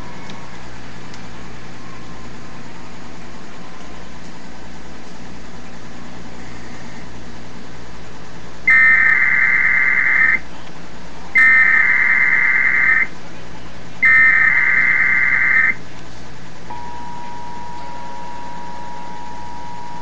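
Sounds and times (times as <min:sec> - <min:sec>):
digital data tone bursts: 0:08.7 - 0:10.4, 0:11.4 - 0:13.1, 0:14.0 - 0:15.8
two-tone attention signal: 0:14.0 - 0:15.8, 0:16.7 - 0:20.0.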